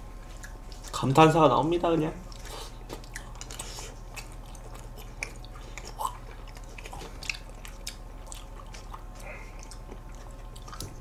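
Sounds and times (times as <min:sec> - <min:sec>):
low steady hum: 0:00.0 - 0:11.0
mouth and chewing sounds: 0:00.2 - 0:01.2, 0:02.2 - 0:11.0.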